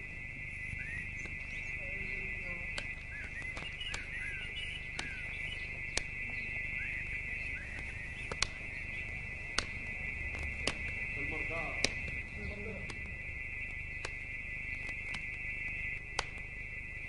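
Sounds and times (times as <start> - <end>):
small birds chirping: 0.0 - 17.0
steady high-pitched hum: 0.0 - 17.0
sharp click: 7.8 - 8.6.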